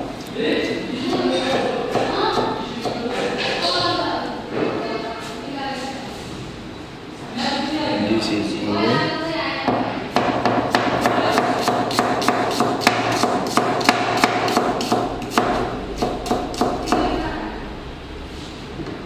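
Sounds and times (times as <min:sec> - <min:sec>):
knife chopping on cutting board: 0:09.7 - 0:17.1.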